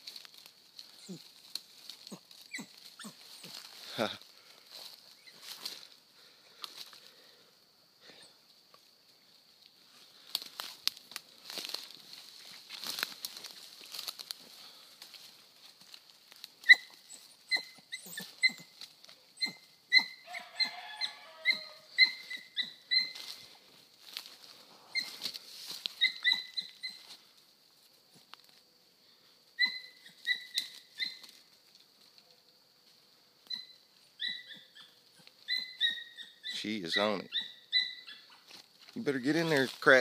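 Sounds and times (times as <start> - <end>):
puppies yipping: 2.1 - 3.6, 16.6 - 18.8, 19.4 - 23.5, 25.0 - 25.3, 25.9 - 27.1, 29.6 - 31.4, 33.5 - 38.6.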